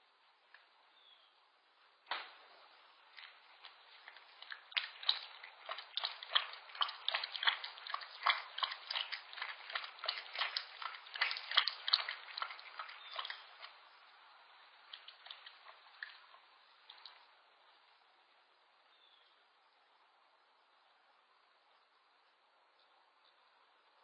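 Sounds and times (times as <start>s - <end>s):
animal lapping water: 2.6s - 17.4s.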